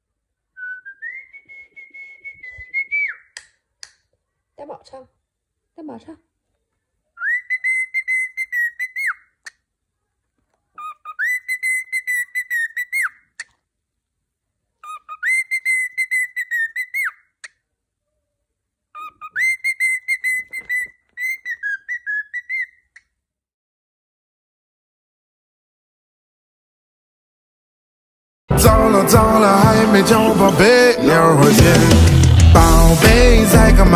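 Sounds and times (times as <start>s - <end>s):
cockatiel whistling: 0.6s - 3.3s, 7.2s - 9.2s, 10.8s - 13.2s, 14.8s - 17.2s, 19.0s - 22.7s.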